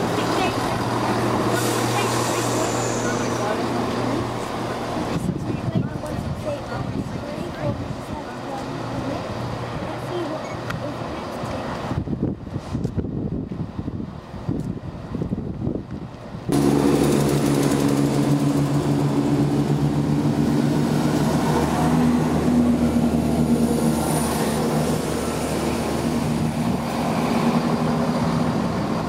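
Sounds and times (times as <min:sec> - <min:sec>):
diesel train engine drone: 0:00.0 - 0:29.0
train rumbling: 0:00.0 - 0:29.0.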